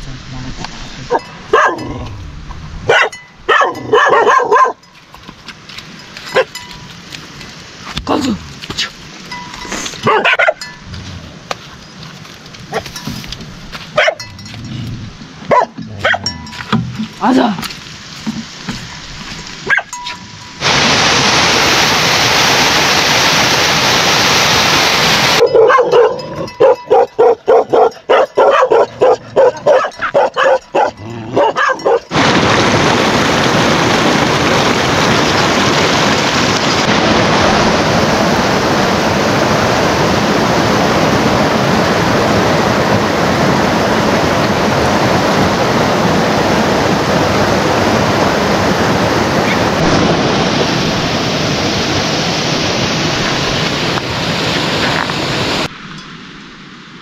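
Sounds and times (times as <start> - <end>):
heavy rain hissing: 0.0 - 3.0, 17.1 - 25.4, 32.1 - 55.7
dog barking rapidly: 1.1 - 2.0, 2.9 - 4.8, 10.0 - 10.7, 14.0 - 14.3, 15.5 - 16.3, 19.6 - 20.0, 25.4 - 32.1.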